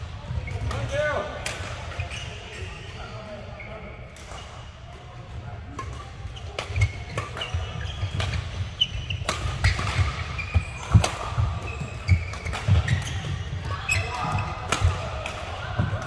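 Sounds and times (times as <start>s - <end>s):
shoes squeaking on court floor: 0.2s - 4.8s, 5.8s - 15.0s
racket hitting shuttlecock: 5.8s - 16.0s.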